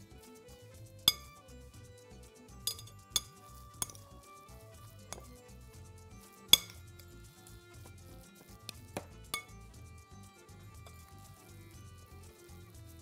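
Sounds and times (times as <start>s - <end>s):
soft background music: 0.0s - 13.0s
spoons clinking on glass bowl: 1.1s - 1.4s, 2.6s - 4.2s, 6.5s - 6.8s, 9.3s - 9.6s.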